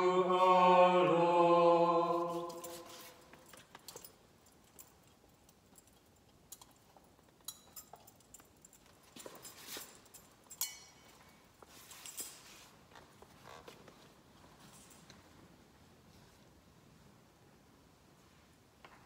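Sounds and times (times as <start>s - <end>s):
metallic clinks of censer chains: 2.4s - 12.7s.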